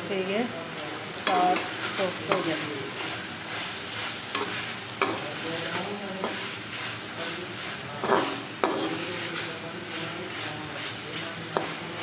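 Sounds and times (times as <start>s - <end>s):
vegetables sizzling in oil: 0.0s - 12.0s
spatula scraping and knocking pot: 8.0s - 9.1s.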